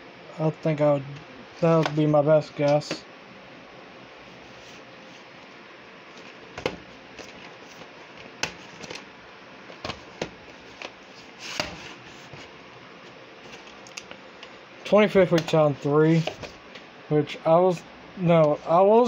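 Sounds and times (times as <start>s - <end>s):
plastic cassettes clicking and knocking: 1.7s - 2.0s, 6.2s - 9.1s, 9.7s - 11.0s.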